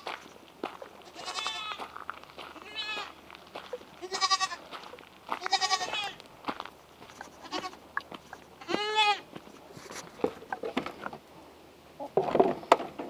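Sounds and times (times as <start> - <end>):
young goats bleating: 1.0 - 1.9, 2.5 - 6.2, 7.2 - 8.0, 8.6 - 9.4.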